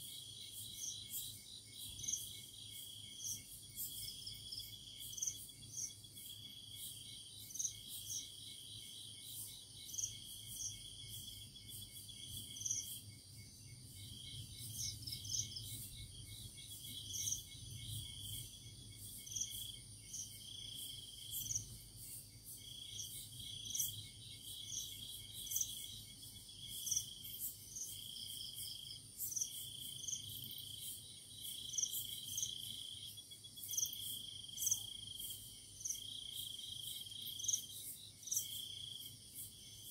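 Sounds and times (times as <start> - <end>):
crickets trilling: 0.0 - 39.9.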